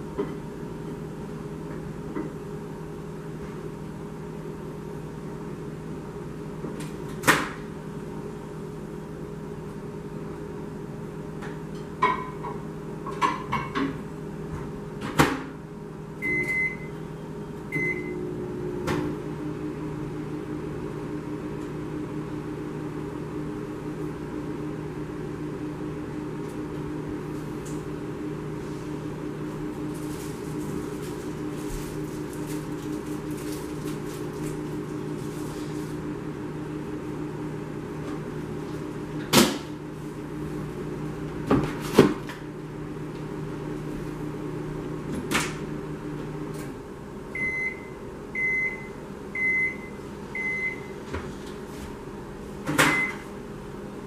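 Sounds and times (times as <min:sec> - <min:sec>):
microwave oven humming: 0:00.0 - 0:54.0
short beeps: 0:16.2 - 0:16.9.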